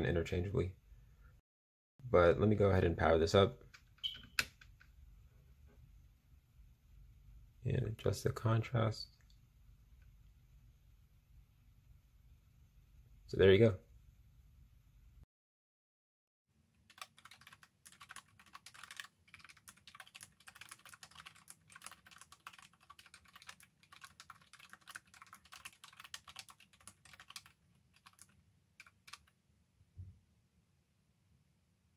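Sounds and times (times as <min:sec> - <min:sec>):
typing on computer keyboard: 0:16.8 - 0:29.3.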